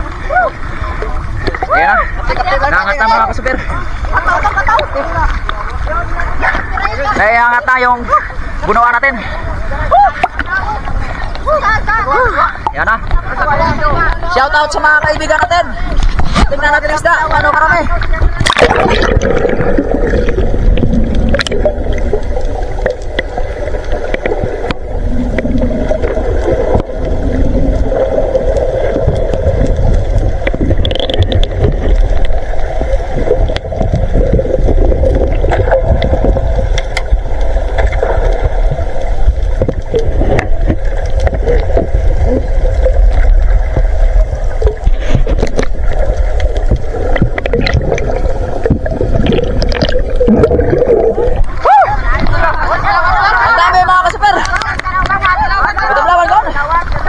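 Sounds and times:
muffled underwater rumble and gurgle: 0.0 - 57.0
underwater clicks and taps: 20.2 - 27.0, 29.1 - 32.4, 35.4 - 42.0, 43.1 - 51.6, 54.0 - 55.9.

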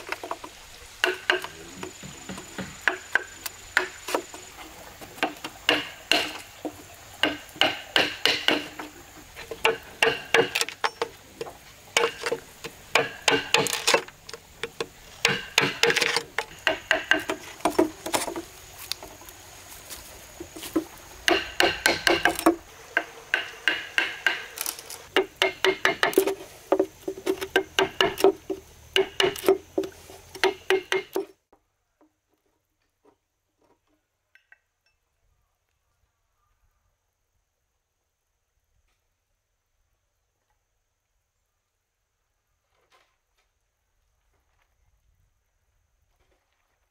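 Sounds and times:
hammer knocking chisel into bamboo: 1.0 - 4.2, 5.2 - 6.4, 7.2 - 8.9, 9.6 - 11.1, 12.0 - 14.0, 14.6 - 18.4, 20.8 - 31.3.

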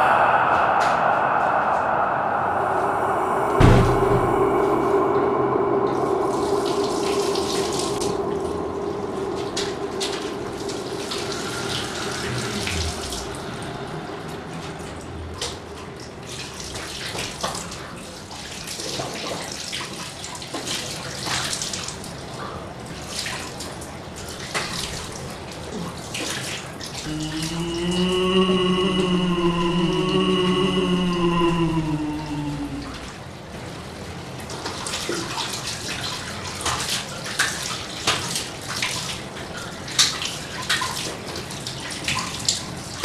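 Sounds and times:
low steady tone: 0.0 - 15.2, 27.1 - 33.2.

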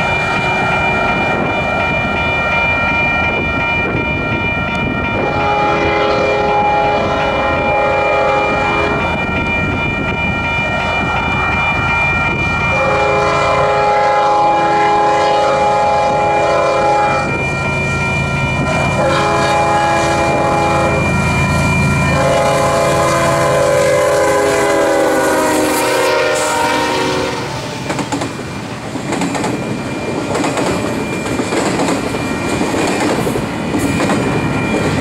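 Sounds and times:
train rumble: 0.0 - 35.0
locomotive air horn blasts: 5.2 - 9.0, 12.7 - 17.4, 18.7 - 21.2, 22.1 - 27.9.

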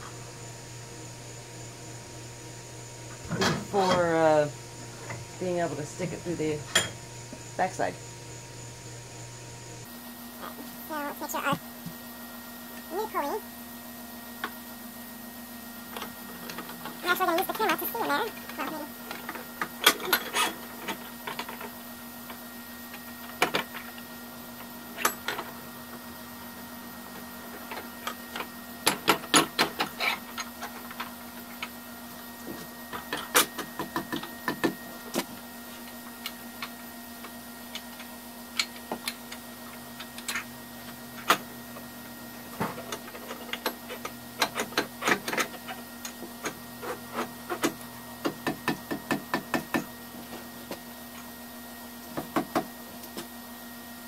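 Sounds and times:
steady low hum: 0.0 - 19.2.

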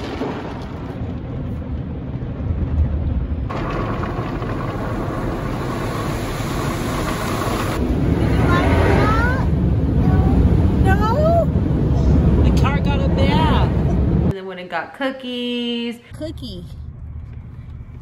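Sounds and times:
low rumble: 0.0 - 14.3, 16.1 - 18.0
water spraying over car: 3.5 - 9.7.

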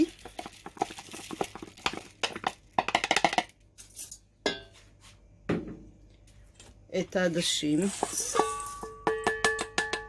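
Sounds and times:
rice grains pattering on metal pot: 0.0 - 4.2.

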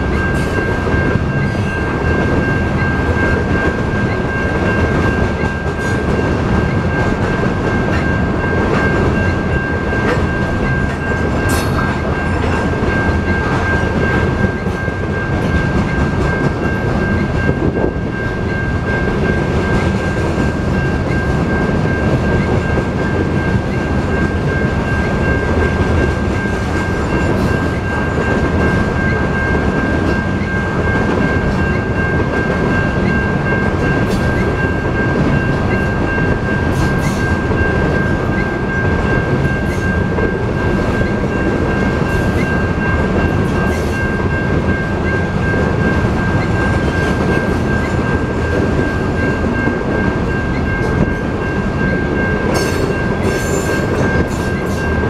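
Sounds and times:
crossing warning bell: 0.0 - 55.0
train wheels rumbling on rails: 0.0 - 55.0.

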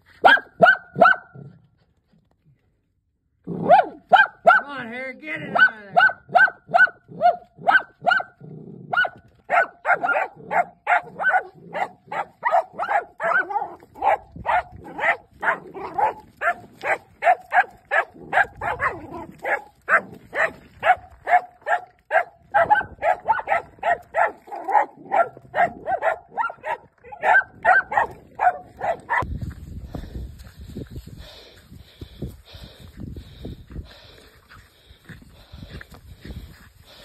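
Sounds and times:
dogs barking rapidly: 0.2 - 1.5, 3.5 - 4.7, 5.5 - 29.3.

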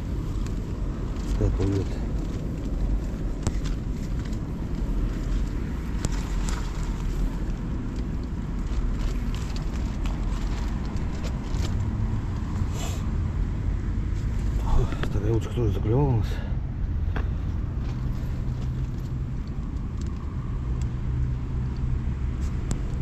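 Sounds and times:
steady low rumbling: 0.0 - 23.0
light clicks and ticks: 18.6 - 21.0.

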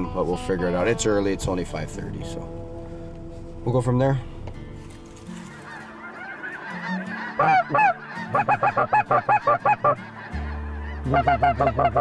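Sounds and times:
geese honking: 4.4 - 12.0.

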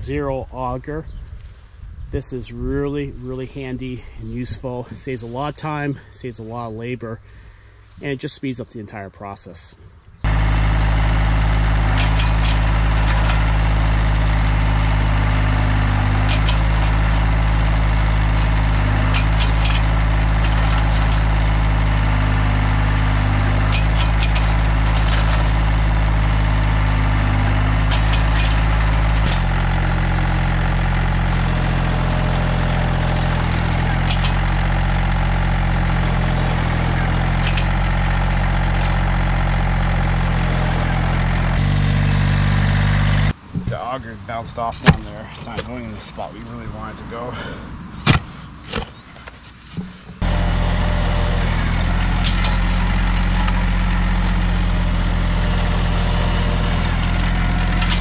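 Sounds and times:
auger boring into clay soil: 10.2 - 43.4, 50.2 - 58.0
tractor diesel engine under load: 10.2 - 58.0.

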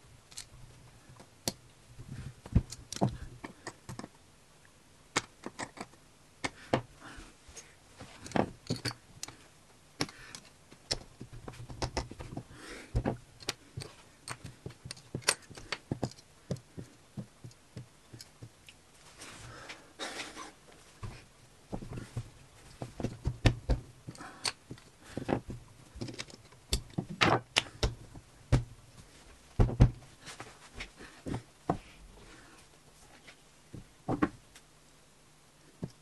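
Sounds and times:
plastic bricks clicking together: 5.1 - 6.6, 11.7 - 12.2, 26.0 - 28.0.

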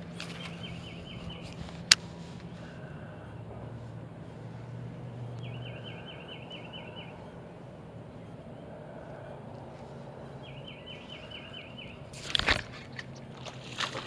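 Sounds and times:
steady low hum: 0.0 - 14.0
songbird trilling: 0.2 - 1.5, 5.4 - 7.3, 10.4 - 12.1.

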